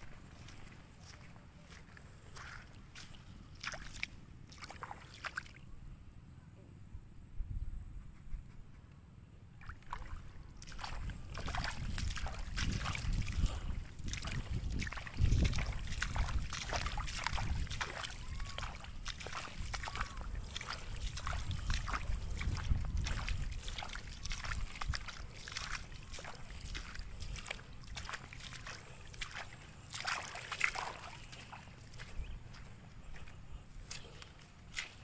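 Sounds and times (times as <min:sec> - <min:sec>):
wind rumbling on microphone: 0:06.8 - 0:08.8, 0:09.6 - 0:35.0.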